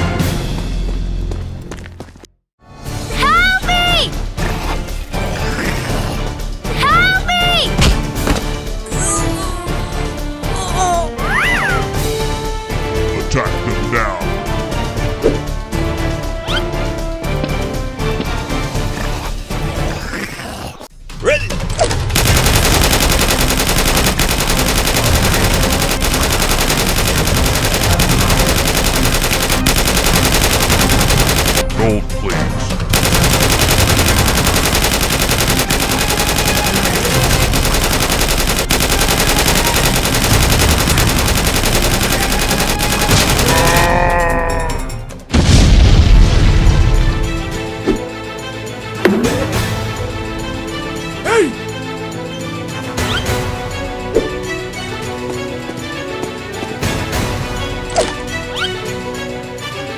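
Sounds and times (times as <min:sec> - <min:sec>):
background music: 0:02.6 - 0:59.9
rapid automatic gunfire: 0:22.2 - 0:31.8, 0:32.9 - 0:43.9
deep explosion boom: 0:45.3 - 0:47.1.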